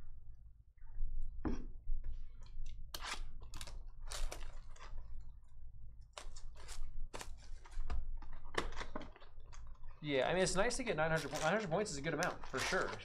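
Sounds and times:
plastic wrap crinkling: 3.0 - 5.4, 6.1 - 13.0.

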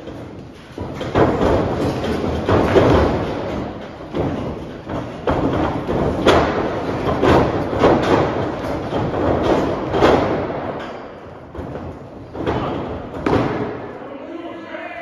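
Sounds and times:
bodies thudding on ring canvas: 0.0 - 13.9.

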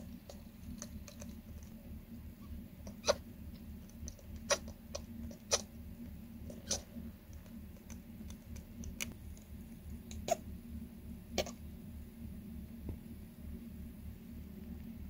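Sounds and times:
hamster squeaking: 2.3 - 5.8, 6.4 - 8.6, 10.1 - 10.5.

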